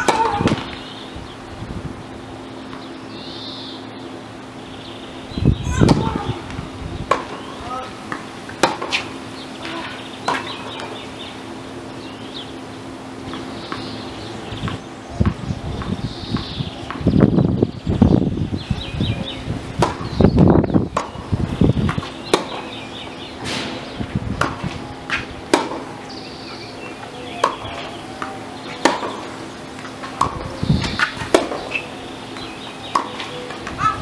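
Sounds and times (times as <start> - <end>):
tennis balls struck and bouncing: 0.0 - 0.9, 5.7 - 11.2, 13.2 - 14.0, 14.6 - 17.2, 19.8 - 22.8, 23.4 - 34.0.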